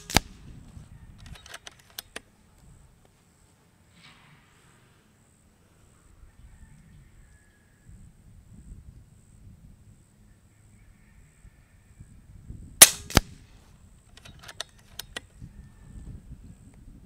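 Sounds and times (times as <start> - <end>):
air rifle shot: 0.0 - 0.4, 12.8 - 13.4
weaker crack: 0.0 - 0.4, 12.8 - 13.4
rifle lever clicks: 1.2 - 2.2, 14.1 - 15.3.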